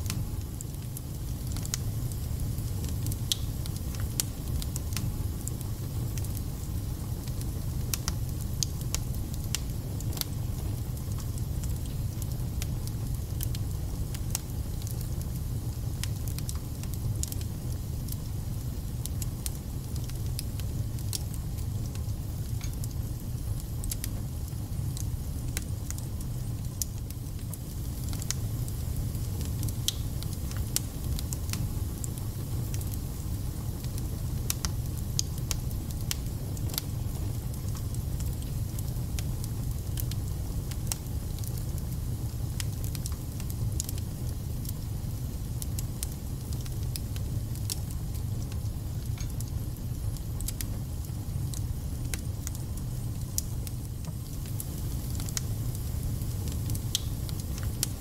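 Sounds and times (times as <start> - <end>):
fire rumbling: 0.0 - 58.0
logs crackling and popping: 0.1 - 6.3, 19.0 - 44.9, 45.6 - 58.0.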